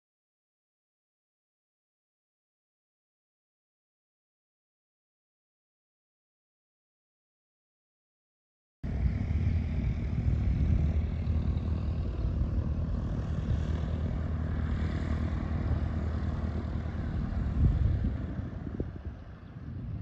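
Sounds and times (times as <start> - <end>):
propeller aircraft engine rumble: 8.8 - 20.0.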